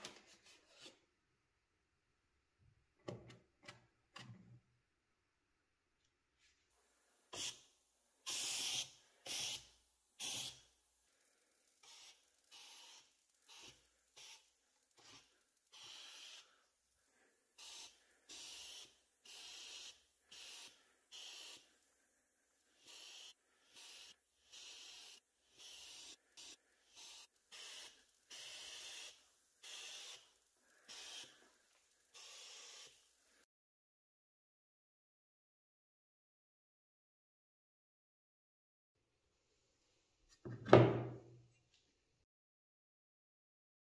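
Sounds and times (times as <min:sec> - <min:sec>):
hissing spray bursts: 0:07.3 - 0:33.4.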